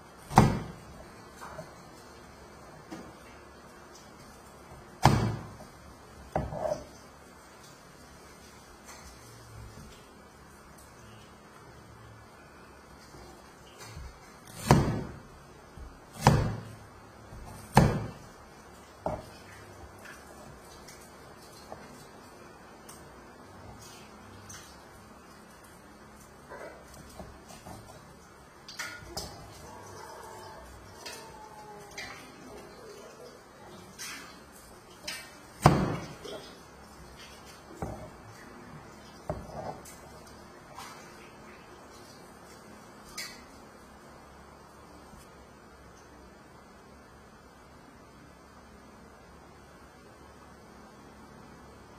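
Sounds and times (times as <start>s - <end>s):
knife chopping on cutting board: 0.3s - 0.8s, 14.5s - 15.2s, 16.1s - 16.7s, 17.4s - 18.2s.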